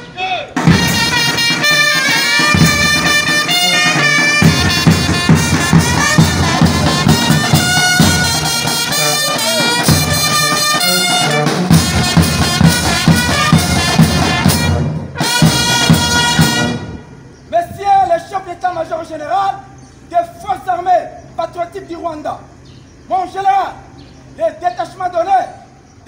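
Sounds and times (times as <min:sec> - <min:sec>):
brass band playing a march: 0:00.0 - 0:17.4
bass drums beating: 0:00.6 - 0:16.8.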